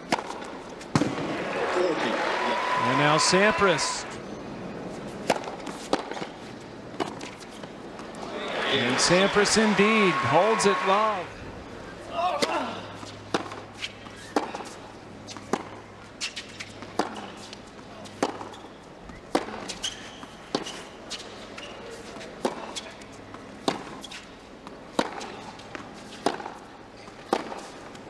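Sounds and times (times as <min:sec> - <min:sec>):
tennis ball hit by rackets: 0:00.0 - 0:01.4, 0:05.2 - 0:08.3, 0:12.2 - 0:18.6, 0:19.3 - 0:21.2, 0:22.0 - 0:27.8
low background murmur: 0:00.4 - 0:28.0.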